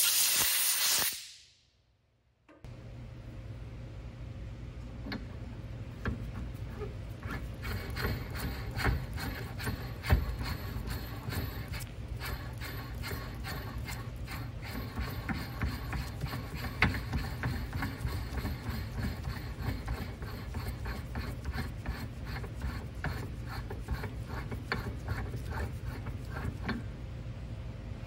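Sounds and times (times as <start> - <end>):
metal threads rubbing: 6.1 - 26.8.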